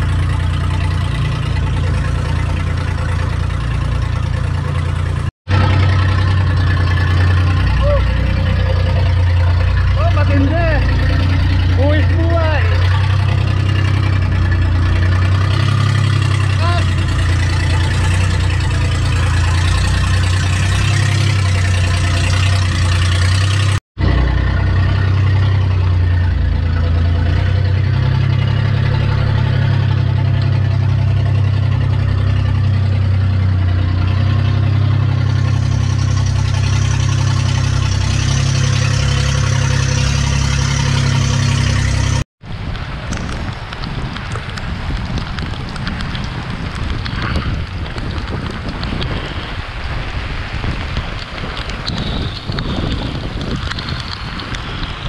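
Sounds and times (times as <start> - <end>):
boat engine running: 0.0 - 55.0
rain: 0.0 - 55.0
wind on microphone: 42.4 - 55.0.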